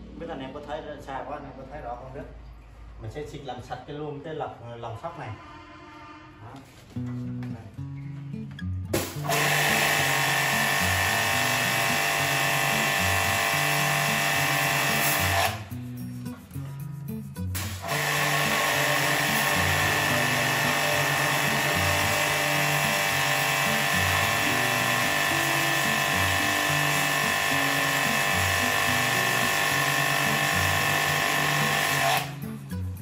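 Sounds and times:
pressure washer pump hum: 9.0 - 15.7, 17.6 - 32.4.

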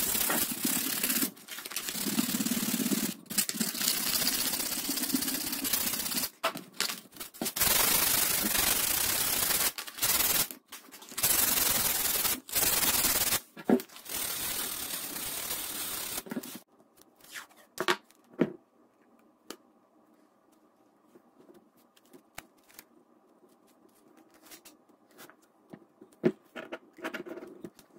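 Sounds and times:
tape crackling: 0.0 - 2.1, 3.0 - 17.4
sandpaper sanding wood: 0.0 - 6.3, 7.5 - 10.5, 11.2 - 13.4, 14.0 - 16.6.

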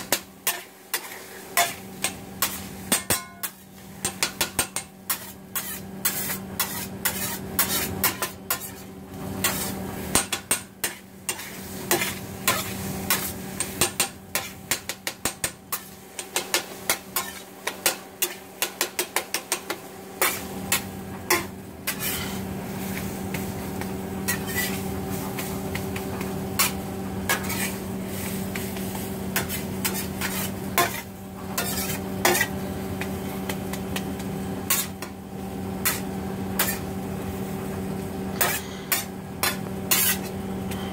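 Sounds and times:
metal spatula tapping on griddle: 0.0 - 5.7, 13.1 - 19.8
eggs sizzling on griddle: 0.0 - 40.4
steady hum: 1.6 - 40.9.

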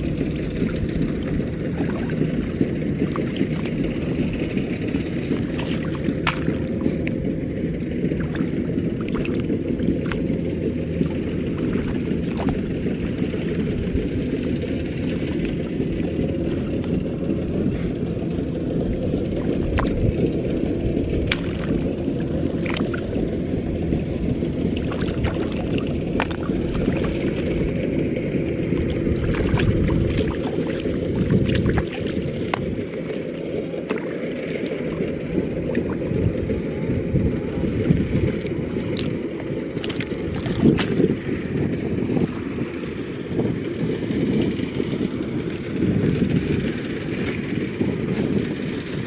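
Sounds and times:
hands splashing in shallow water: 0.0 - 17.1, 19.3 - 20.2, 21.2 - 23.4, 24.7 - 27.9, 28.5 - 36.7, 37.6 - 41.4
wind rumble on microphone: 0.0 - 49.0.

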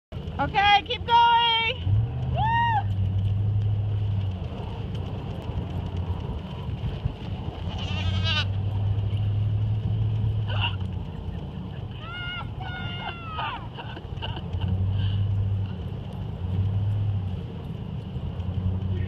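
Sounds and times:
goats bleating: 7.7 - 8.5.

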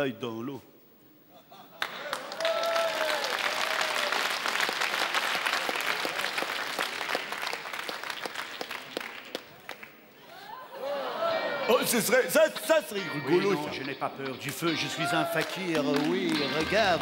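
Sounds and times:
audience applauding: 1.8 - 10.1, 13.7 - 17.0.

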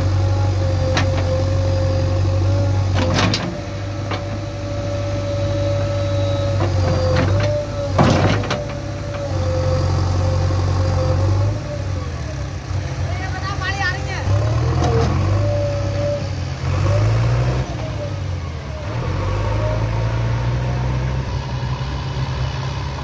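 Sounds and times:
hydraulic whine: 0.0 - 12.4
diesel engine running: 0.0 - 23.0.

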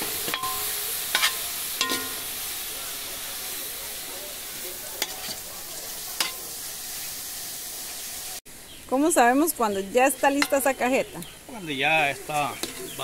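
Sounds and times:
sizzling hiss in metal pot: 0.0 - 13.0
metal ladle scraping and clinking: 0.3 - 2.2, 5.0 - 5.4, 12.5 - 13.0.

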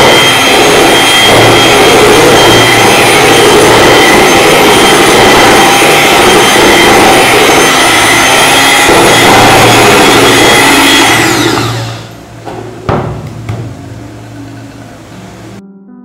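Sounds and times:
electric mixer whining: 0.0 - 12.8
sharp knock: 12.5 - 13.9.

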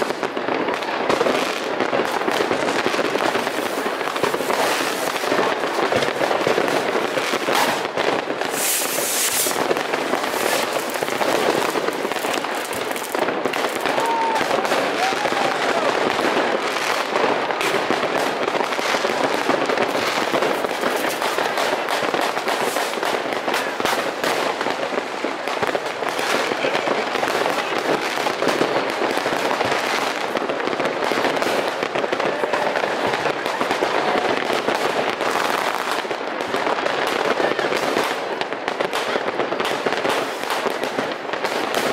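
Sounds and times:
fireworks bangs and crackles: 0.0 - 41.9
high hiss: 8.5 - 9.6.

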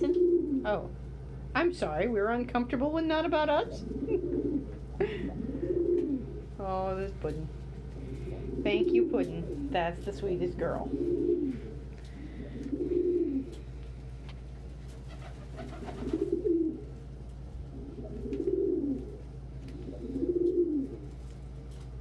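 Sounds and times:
pigeon cooing: 0.0 - 0.7, 3.6 - 6.6, 7.8 - 9.8, 10.8 - 13.7, 15.0 - 17.0, 17.6 - 21.2.

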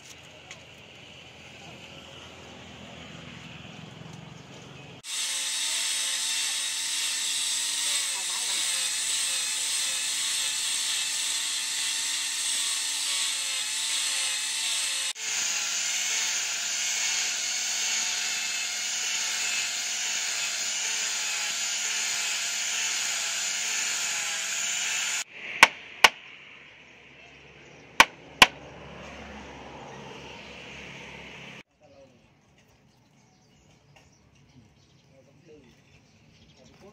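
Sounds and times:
angle grinder whine: 5.0 - 25.3.

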